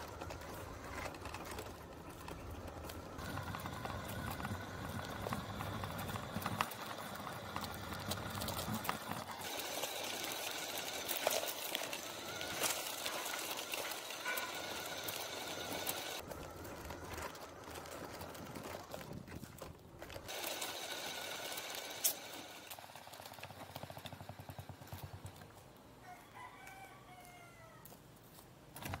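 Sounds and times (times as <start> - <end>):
outdoor hiss: 20.3 - 23.4
rooster crowing: 26.0 - 28.0.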